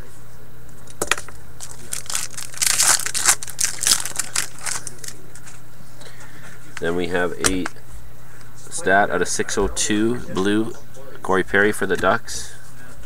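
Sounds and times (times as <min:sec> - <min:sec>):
wrapper crackling: 0:01.6 - 0:05.2.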